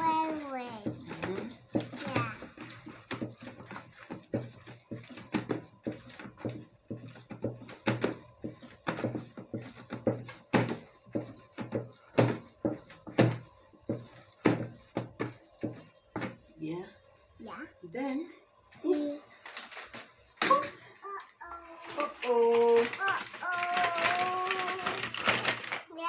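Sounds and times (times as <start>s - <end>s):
dough thumping in a basin: 0.0s - 16.6s.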